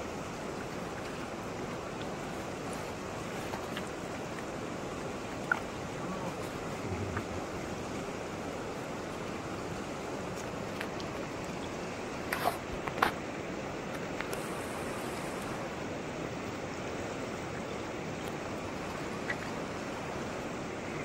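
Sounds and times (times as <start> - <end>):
river flowing over rocks: 0.0 - 21.0.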